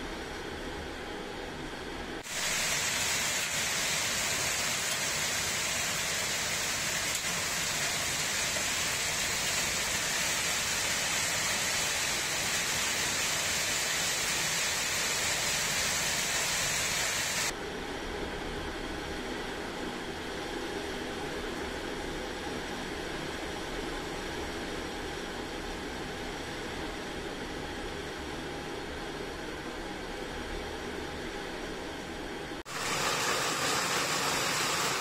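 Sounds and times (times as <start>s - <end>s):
heavy rain hissing: 2.2s - 17.5s, 32.7s - 35.0s.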